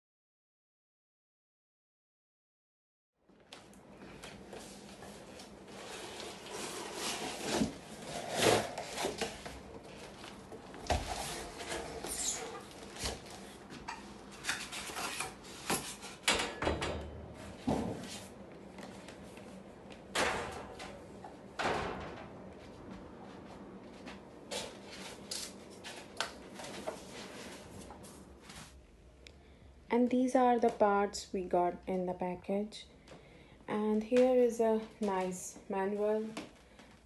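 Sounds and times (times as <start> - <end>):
metal panels knocking and thumping: 16.3 - 18.0, 20.1 - 21.0, 21.6 - 22.5.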